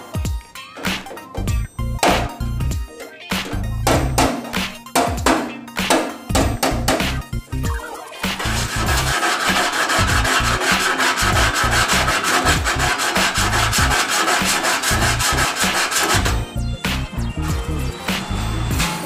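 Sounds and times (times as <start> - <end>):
background music with bass beat: 0.0 - 19.0
sandpaper rubbing on steel: 8.3 - 16.4.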